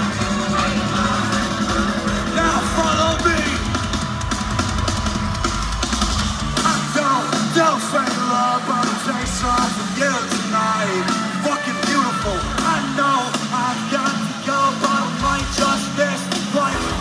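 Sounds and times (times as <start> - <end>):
person singing: 0.0 - 3.8, 6.6 - 17.0
bass: 0.0 - 17.0
drums: 0.0 - 17.0.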